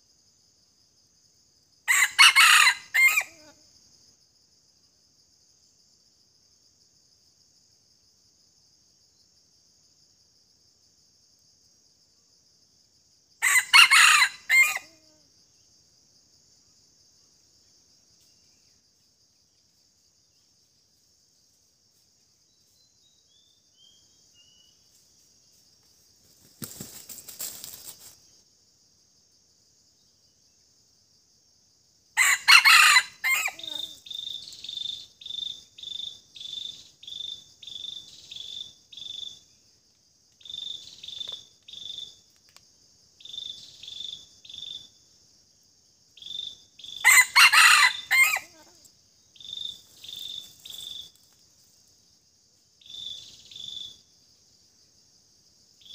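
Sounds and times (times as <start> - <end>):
cricket chirping: 0.0 - 55.9
high insect buzz: 0.0 - 55.9
rooster crowing: 1.9 - 3.6, 13.4 - 15.0, 32.2 - 33.9, 47.0 - 48.8.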